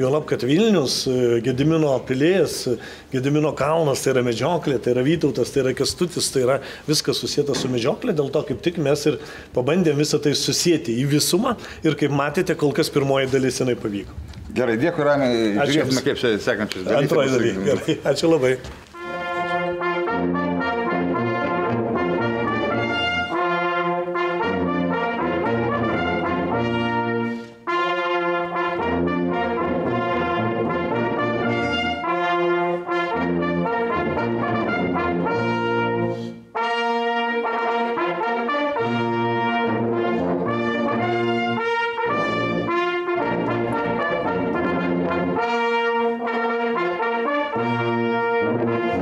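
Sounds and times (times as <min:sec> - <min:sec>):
hunting horns playing chords: 0:18.9 - 0:49.0.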